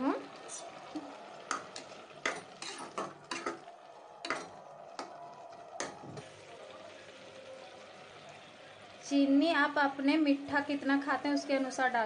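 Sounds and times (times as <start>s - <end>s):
spatula scraping metal pot: 2.2s - 3.6s.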